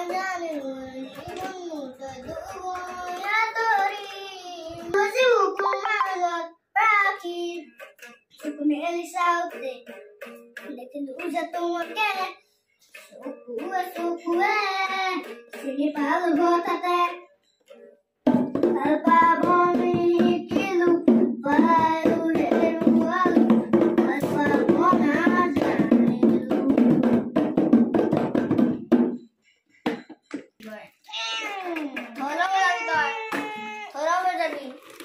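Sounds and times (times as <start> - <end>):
toy playing tune with a beat: 0.0 - 6.2, 7.6 - 21.0
boy singing into toy microphone: 0.0 - 17.3, 18.5 - 27.3, 32.2 - 34.6.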